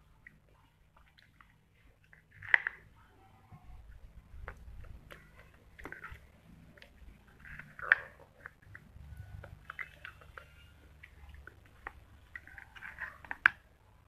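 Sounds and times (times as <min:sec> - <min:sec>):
clay fragment cracking: 0:00.2 - 0:02.9, 0:04.0 - 0:13.7
chewing crunches: 0:04.4 - 0:13.6.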